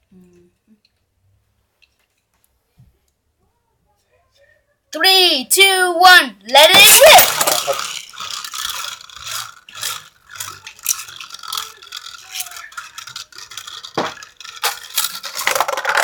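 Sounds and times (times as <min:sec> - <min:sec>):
spinning top clacks: 0:06.5 - 0:16.0
spinning top whirring on plastic: 0:06.5 - 0:16.0.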